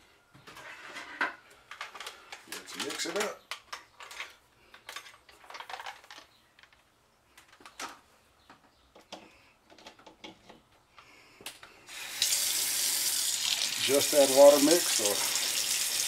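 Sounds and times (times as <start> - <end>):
things handled in a kitchen: 0.2 - 11.9.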